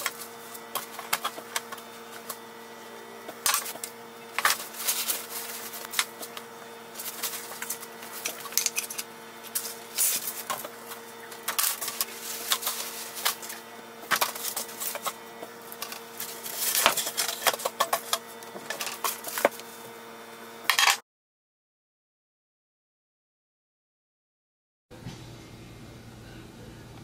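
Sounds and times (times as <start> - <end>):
packing wrap rustling and crinkling: 3.4 - 6.4, 7.0 - 17.7.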